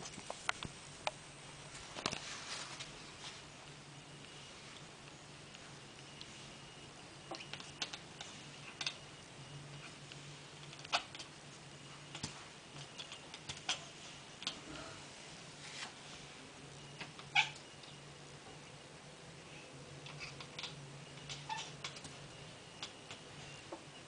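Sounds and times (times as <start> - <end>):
cat chattering: 10.7 - 11.4, 12.8 - 14.6, 17.2 - 18.0, 20.0 - 22.0.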